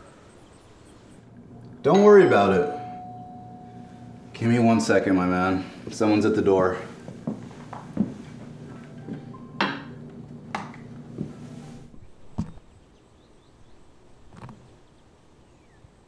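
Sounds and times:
low room hum: 0.0 - 14.0
footsteps on hard floor: 7.0 - 9.4, 10.7 - 11.6.

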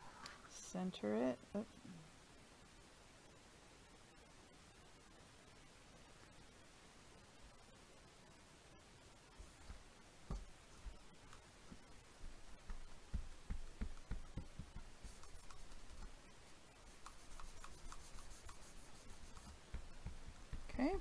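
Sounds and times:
box knocking on cutting mat: 10.3 - 10.5, 12.7 - 14.9
paper towel rubbing on paper: 16.9 - 19.6.

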